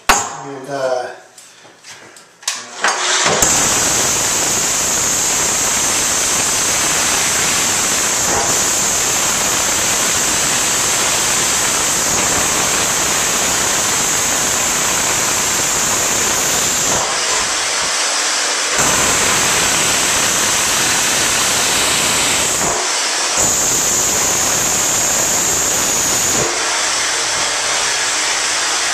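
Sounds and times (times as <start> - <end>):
jackhammer chipping cast iron: 2.9 - 17.6, 18.8 - 26.6.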